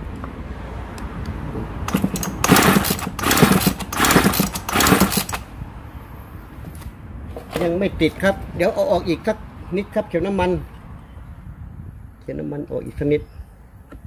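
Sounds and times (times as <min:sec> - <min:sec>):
engine turning over: 0:01.8 - 0:05.5
chainsaw recoil starter pulls: 0:01.9 - 0:05.5.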